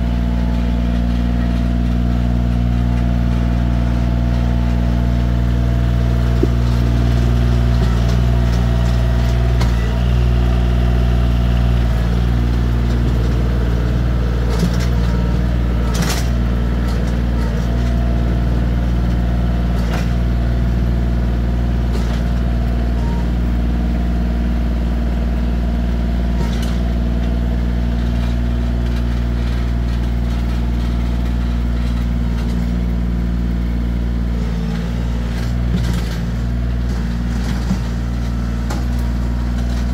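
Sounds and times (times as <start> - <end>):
tractor diesel engine running: 0.0 - 39.9
sharp knocks: 6.3 - 6.8.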